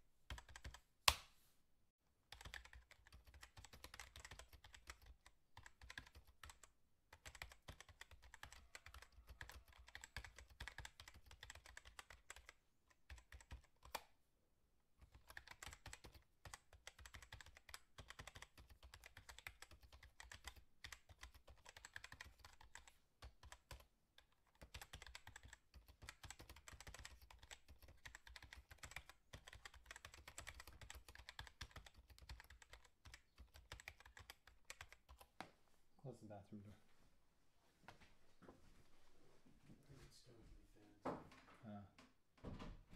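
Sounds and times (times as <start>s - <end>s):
faint rapid clicking and tapping: 2.3s - 14.1s, 15.0s - 35.6s.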